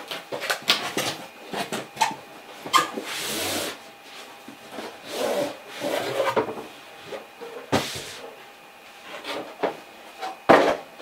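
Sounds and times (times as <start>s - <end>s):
cardboard scraping and rubbing: 2.0s - 6.4s.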